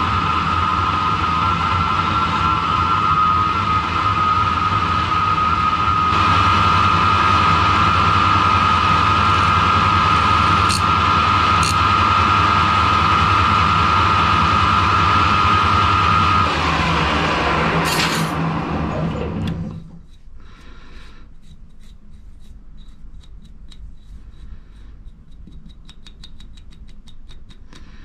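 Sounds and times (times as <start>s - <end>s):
metal lathe whine and hum: 0.0s - 20.2s
file hissing on spinning metal: 9.0s - 12.1s.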